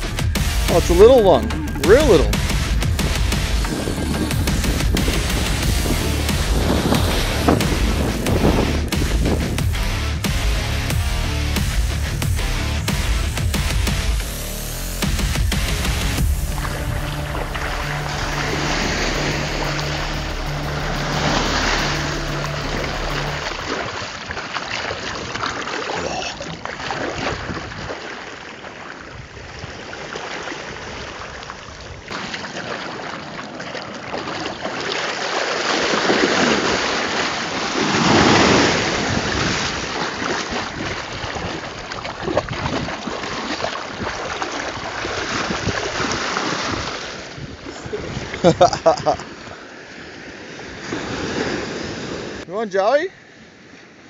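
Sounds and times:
wind buffeting microphone: 0.0 - 9.8, 27.0 - 28.1, 37.9 - 49.6
surf washing over sand: 26.6 - 52.9.

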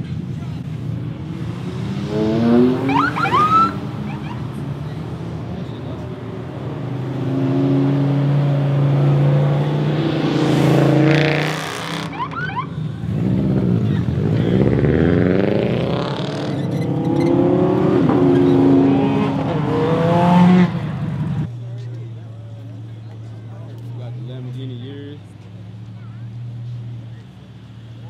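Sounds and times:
cars driving past: 0.0 - 28.0
engine revving: 1.1 - 5.4, 6.3 - 21.5.

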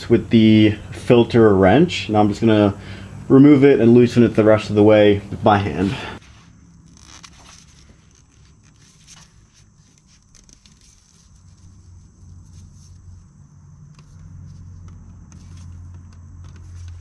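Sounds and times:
low steady hum: 0.0 - 17.0
faint rustling: 5.7 - 17.0.

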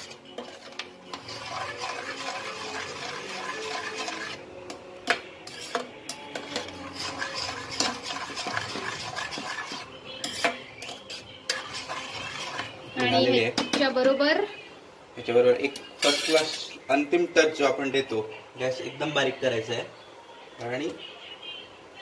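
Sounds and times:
spoon scraping in a pot: 0.0 - 13.9, 16.0 - 16.8.

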